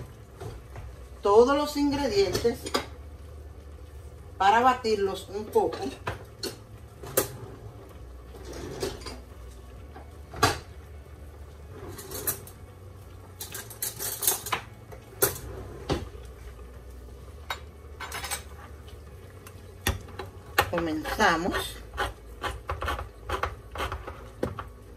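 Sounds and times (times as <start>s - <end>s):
kitchen items clinking: 11.8s - 12.6s, 13.4s - 16.1s, 17.4s - 18.8s.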